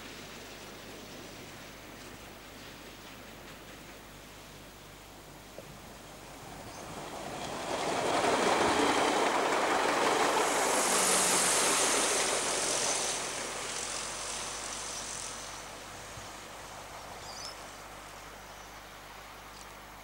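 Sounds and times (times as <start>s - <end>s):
diesel railcar passing: 0.0s - 20.0s
wheels on rails: 5.6s - 19.8s.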